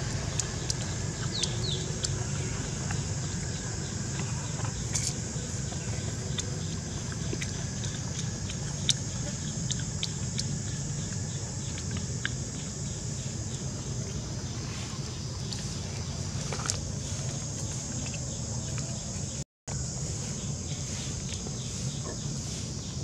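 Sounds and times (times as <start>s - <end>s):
monkey gnawing corn cob: 0.0s - 14.6s, 15.4s - 19.1s.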